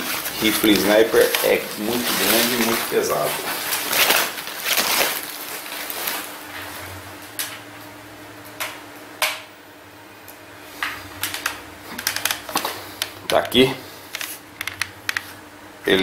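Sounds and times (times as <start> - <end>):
wrapping material rustling: 0.0 - 7.0
faint steady hum: 0.0 - 16.0
knocks and clicks of handling: 11.3 - 13.6, 14.2 - 15.3.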